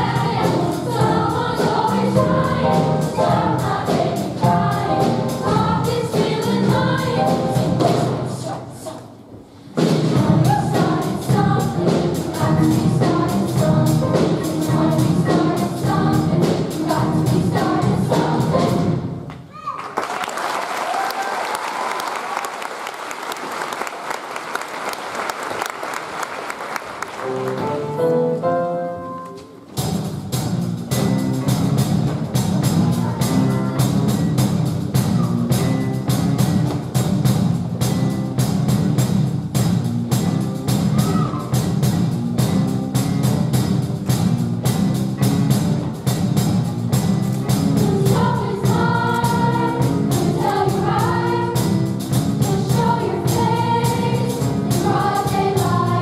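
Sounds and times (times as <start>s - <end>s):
choir singing: 0.0s - 8.8s, 10.2s - 19.1s, 47.6s - 56.0s
audience applause: 19.6s - 27.8s.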